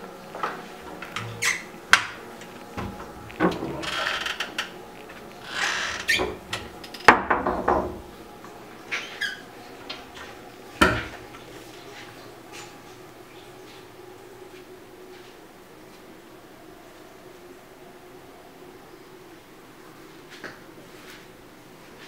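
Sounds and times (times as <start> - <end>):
wooden cabinet doors knocking shut: 7.1 - 8.1.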